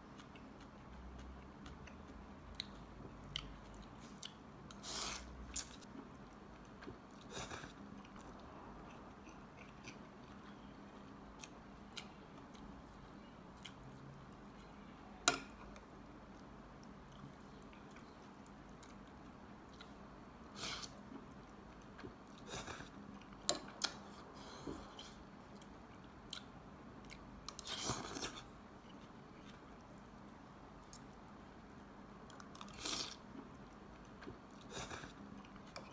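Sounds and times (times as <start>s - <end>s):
person chewing: 5.5s - 12.7s, 13.6s - 14.7s, 24.7s - 29.8s.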